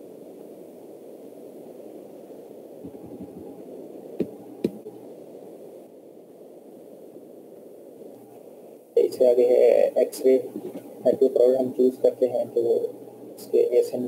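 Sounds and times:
microphone hiss and hum: 0.0s - 14.0s
soft thumps: 4.2s - 4.9s.

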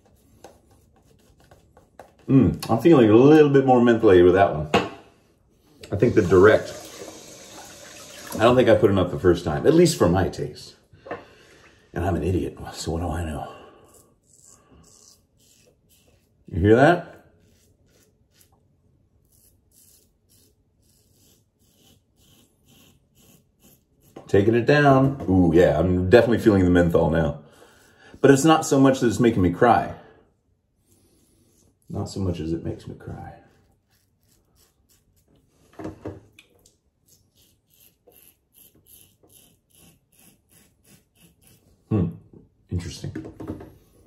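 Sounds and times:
razor scraping stubble: 0.0s - 2.7s, 12.8s - 24.7s, 30.8s - 35.7s, 36.9s - 41.9s.

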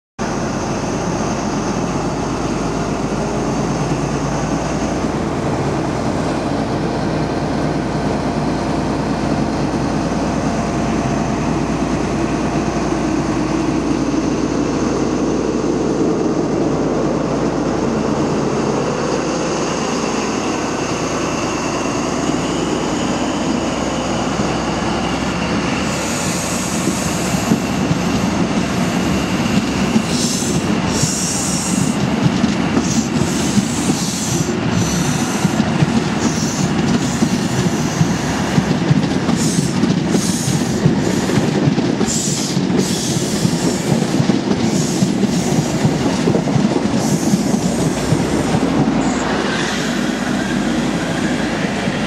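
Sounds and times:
diesel locomotive droning: 0.2s - 52.0s
sharp clicks of rolling coaches: 17.1s - 52.0s.

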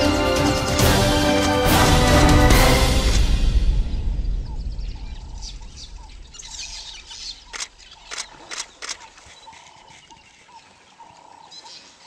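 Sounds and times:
water ambience: 0.0s - 12.0s
birds chirping: 2.9s - 12.0s
sharp clicks: 7.1s - 9.8s.

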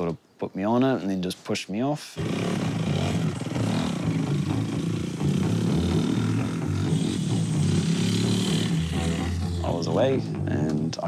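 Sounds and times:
dirt bike engine revving: 2.2s - 10.8s.

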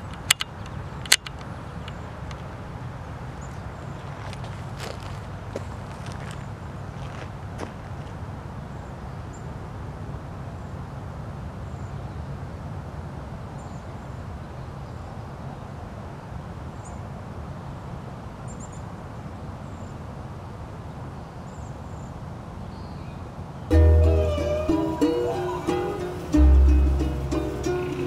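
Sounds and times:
steady low rumble: 23.7s - 28.0s.

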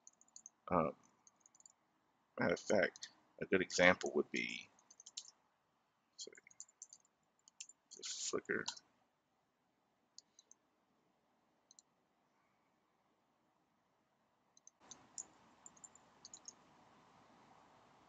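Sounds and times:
mouse clicks: 4.8s - 5.4s, 11.7s - 11.9s, 14.6s - 16.6s.

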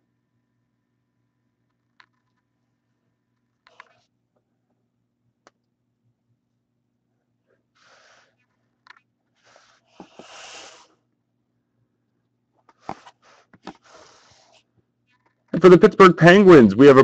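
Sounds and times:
cards sliding and rubbing: 7.8s - 10.9s, 12.6s - 14.7s.

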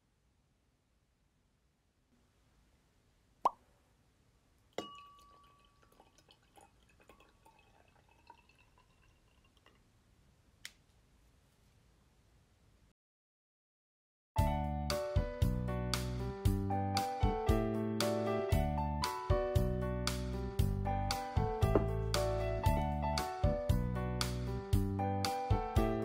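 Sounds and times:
juice pouring into glass: 4.7s - 9.9s
glass ringing: 4.8s - 6.4s
knock: 21.6s - 22.0s.

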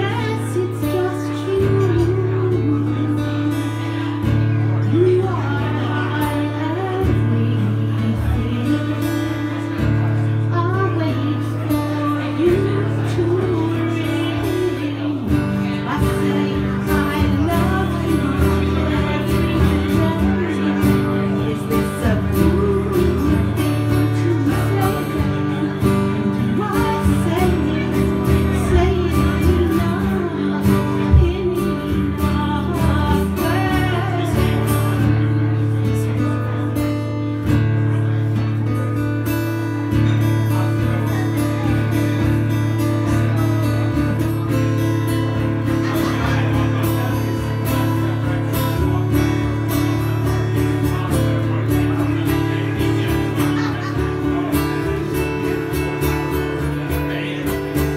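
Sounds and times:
woman singing: 0.0s - 35.4s
acoustic guitar chords: 0.0s - 57.9s.

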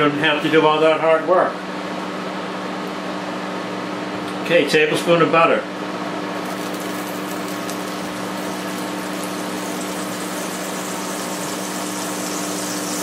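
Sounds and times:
steady mechanical hum: 0.0s - 13.0s
butter sizzling in a frying pan: 6.4s - 13.0s.

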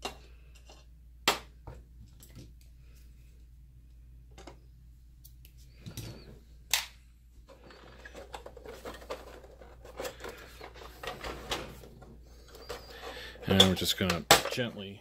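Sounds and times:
hands handling plastic case: 7.5s - 14.7s.

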